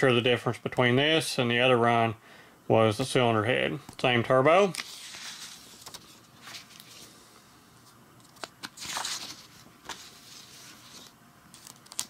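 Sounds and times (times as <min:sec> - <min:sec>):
paper rustling: 0:04.6 - 0:07.1, 0:08.2 - 0:12.0.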